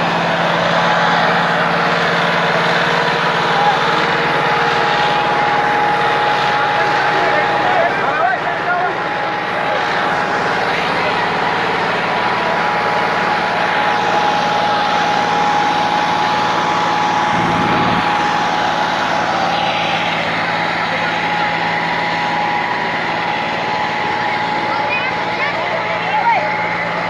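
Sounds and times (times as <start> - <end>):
tractor diesel engine running: 0.0 - 27.0
people's voices: 3.3 - 5.5, 6.4 - 12.9, 17.2 - 18.9, 24.2 - 27.0
high whine: 17.0 - 19.1.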